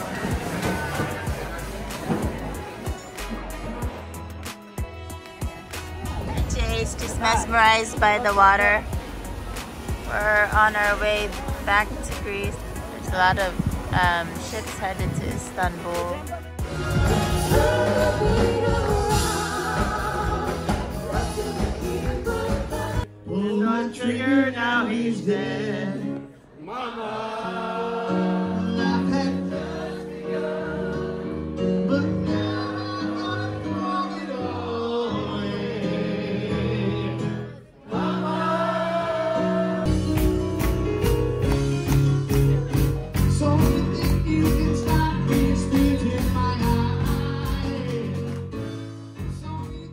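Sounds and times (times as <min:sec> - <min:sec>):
song with strong steady beat: 0:00.2 - 0:23.1, 0:39.4 - 0:49.9
people singing together: 0:16.6 - 0:40.3
piano playing: 0:27.4 - 0:49.9.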